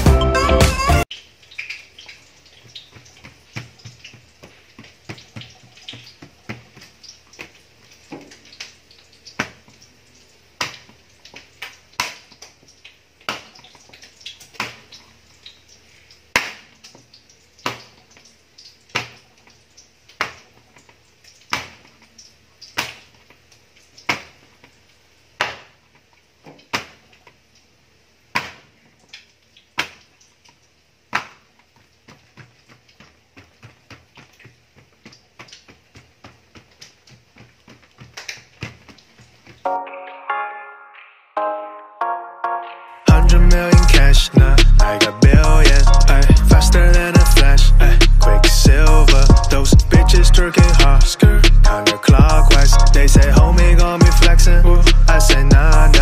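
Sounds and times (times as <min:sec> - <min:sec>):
hand slapping oiled dough: 0:16.3 - 0:16.8, 0:18.9 - 0:19.2, 0:21.5 - 0:21.9, 0:24.0 - 0:24.4, 0:25.4 - 0:25.8, 0:26.5 - 0:27.0, 0:28.3 - 0:28.8, 0:31.1 - 0:39.6.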